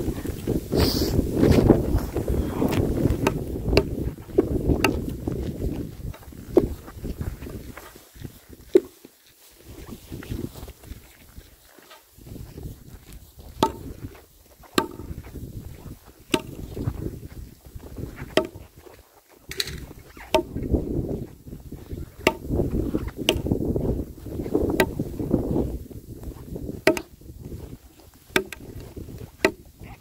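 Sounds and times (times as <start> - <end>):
hand tool chopping ice: 26.9 - 27.1.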